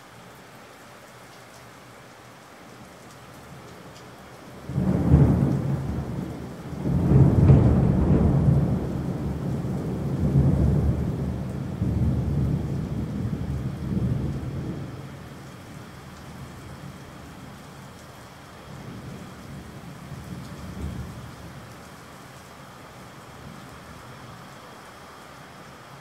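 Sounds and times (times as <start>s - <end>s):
steady rain: 0.0s - 26.0s
thunder rumbling: 4.6s - 17.0s, 18.6s - 21.7s.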